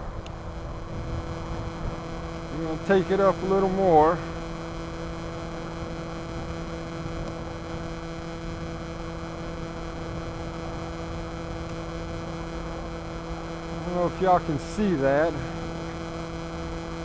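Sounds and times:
drone propellers humming: 0:00.0 - 0:17.0.

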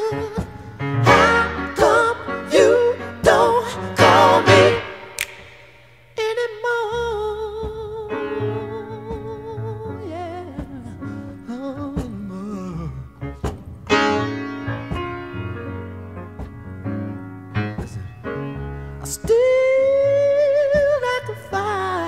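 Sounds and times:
solo piano chords: 0:00.0 - 0:05.2, 0:08.0 - 0:22.0
man singing wordless runs: 0:06.2 - 0:13.2.

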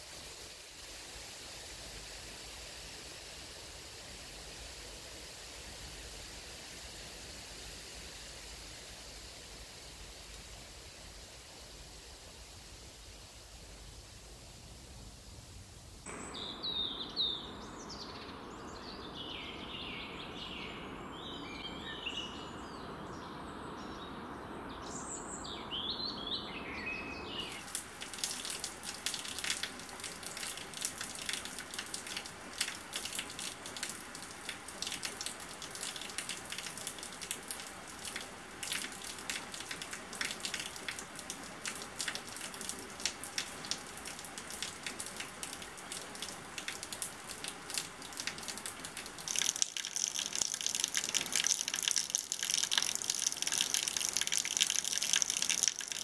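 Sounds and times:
songbirds chirping: 0:16.1 - 0:56.0
rain falling on grass: 0:27.5 - 0:56.0.

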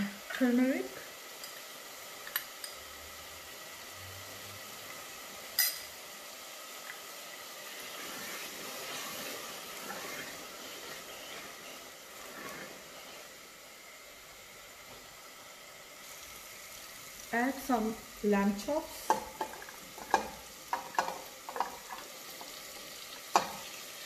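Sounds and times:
masala sizzling in a pot: 0:00.0 - 0:24.0
wooden spoon stirring: 0:06.8 - 0:13.7, 0:18.6 - 0:23.8.

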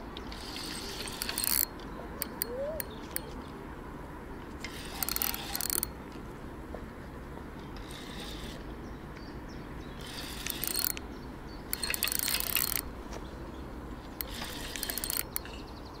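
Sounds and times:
fishing reel drag clicking: 0:00.3 - 0:03.3, 0:04.6 - 0:06.0, 0:07.8 - 0:08.6, 0:10.0 - 0:11.0, 0:11.7 - 0:12.9, 0:14.2 - 0:15.5.

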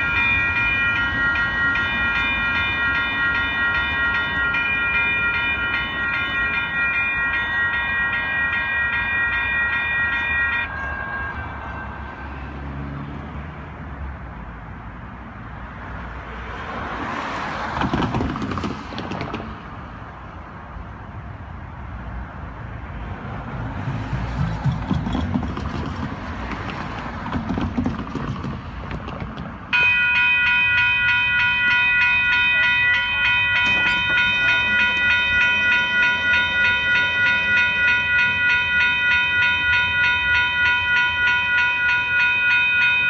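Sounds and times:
crossing warning bell ringing: 0:00.0 - 0:12.9, 0:29.7 - 0:43.0
light rail train rumbling: 0:00.0 - 0:43.0
passing vehicle rush: 0:10.3 - 0:29.8.

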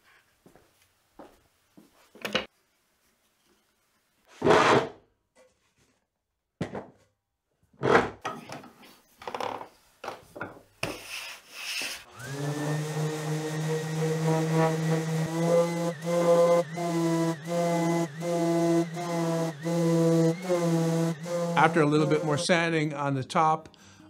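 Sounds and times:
orbital sander motor whine: 0:12.1 - 0:23.2.

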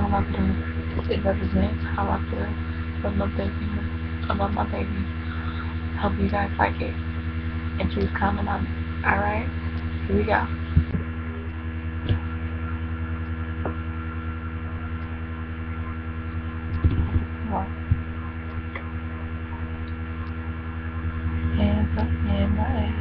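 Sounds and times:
electrical mains hum: 0:00.0 - 0:23.0.

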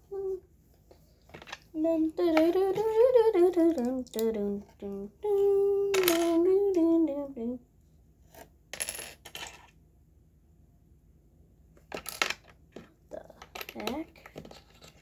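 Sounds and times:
child humming: 0:00.0 - 0:00.4.

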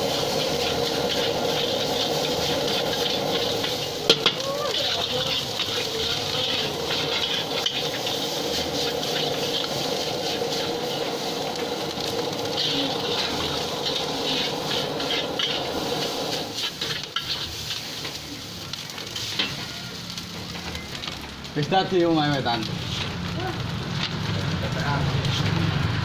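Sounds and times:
metal spatula scraping a pan: 0:00.0 - 0:18.2
food sizzling in a wok: 0:00.0 - 0:26.0.

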